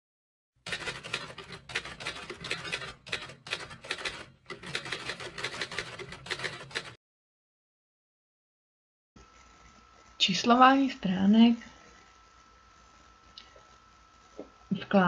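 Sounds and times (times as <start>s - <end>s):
keyboard typing: 0.7s - 7.0s.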